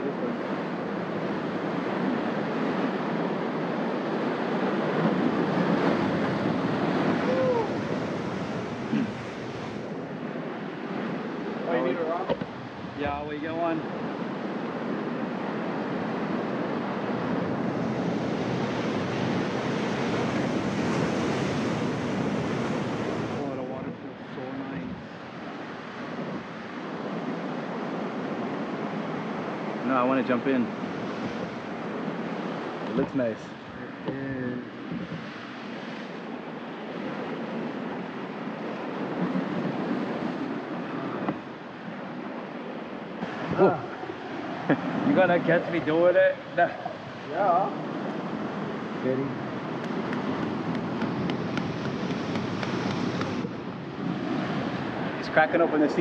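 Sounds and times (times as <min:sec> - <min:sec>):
surf breaking over rocks: 0:00.0 - 0:56.0.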